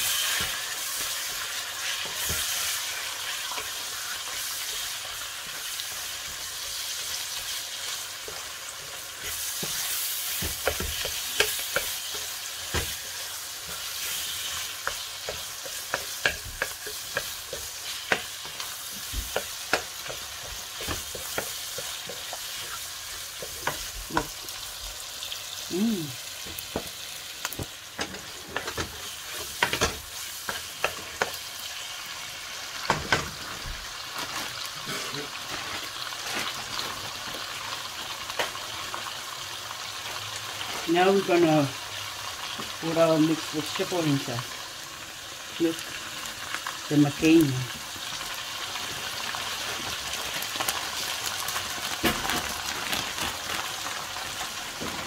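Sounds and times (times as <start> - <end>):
spatula scraping and clicking pan: 0.0 - 24.5, 26.4 - 31.7
meat and onions sizzling in oil: 0.0 - 55.0.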